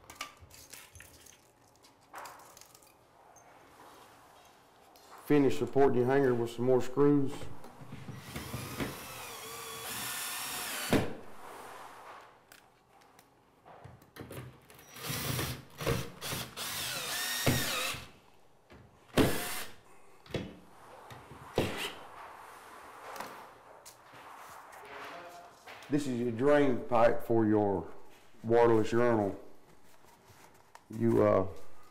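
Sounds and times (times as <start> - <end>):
cordless drill motor whining: 8.2 - 10.9, 16.3 - 18.0.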